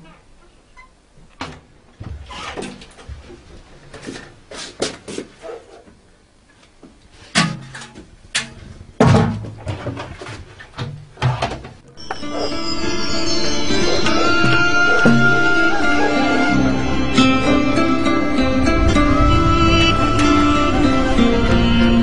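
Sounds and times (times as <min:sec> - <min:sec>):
plastic jugs and bucket clattering: 0:07.3 - 0:11.9.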